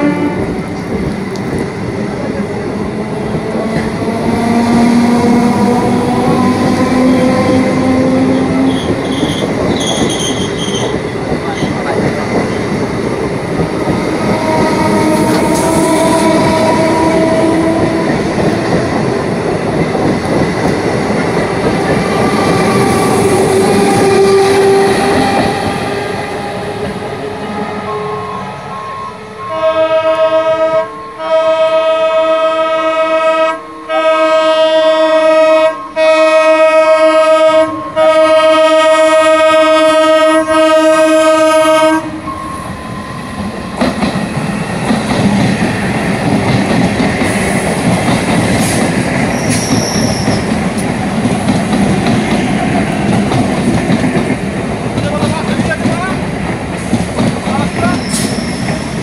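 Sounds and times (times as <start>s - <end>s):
train horn blasts: 0.0s - 0.6s, 14.2s - 18.4s, 27.4s - 42.7s
train passing with wheel clatter: 0.0s - 59.0s.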